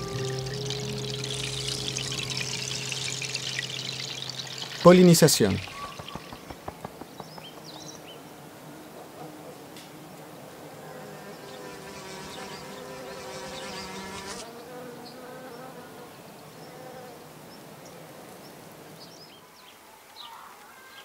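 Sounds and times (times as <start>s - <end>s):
bee buzzing: 0.0s - 6.7s, 10.5s - 16.1s.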